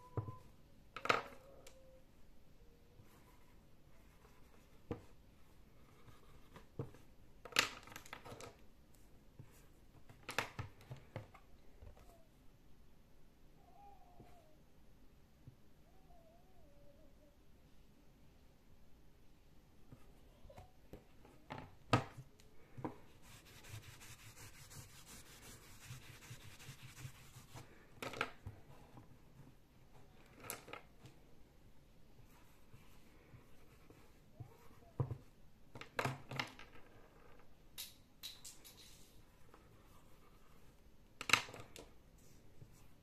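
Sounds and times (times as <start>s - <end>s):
marker scratchy rubbing: 23.2s - 27.6s.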